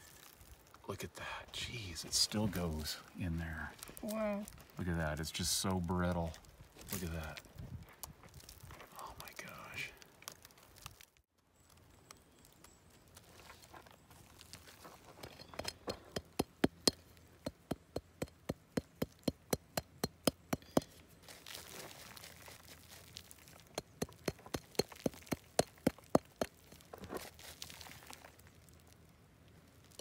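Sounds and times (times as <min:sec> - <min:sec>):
rock pick tapping rock: 0:15.5 - 0:21.0, 0:23.6 - 0:26.8.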